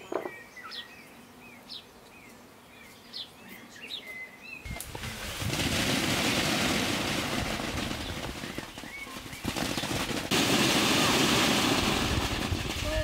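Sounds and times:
plastic tarpaulin rustling: 4.8 - 13.0.

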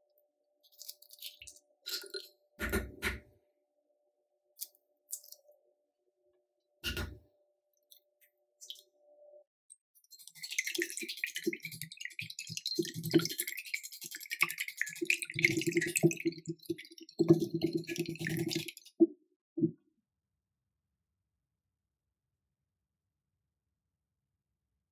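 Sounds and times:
whisk beating eggs in bowl: 10.2 - 18.9.

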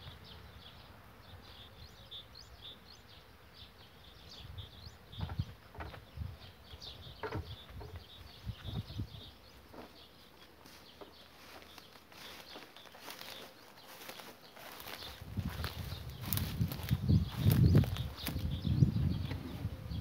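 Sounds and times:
rustles: 5.1 - 19.9.

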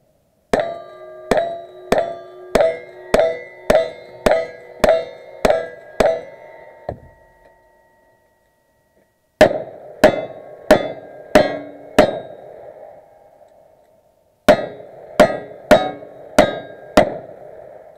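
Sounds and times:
steel plates ringing: 0.5 - 12.6, 14.5 - 17.4.

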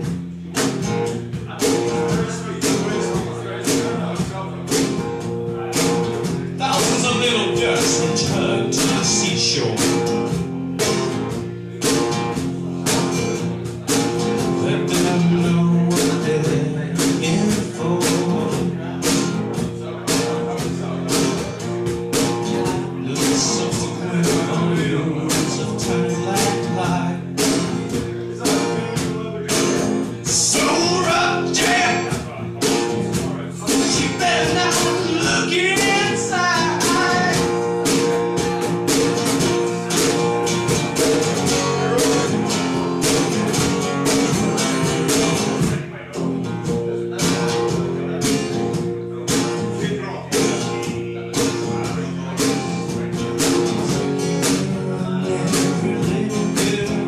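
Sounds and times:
cajon beat: 0.0 - 57.0
strummed acoustic guitar: 0.0 - 57.0
person singing: 14.6 - 19.3, 22.7 - 32.8, 33.5 - 38.7, 49.7 - 57.0.

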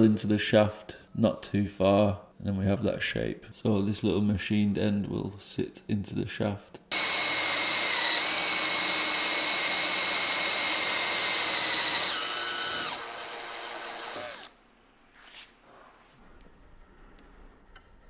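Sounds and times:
electric drill whining: 6.9 - 14.5.

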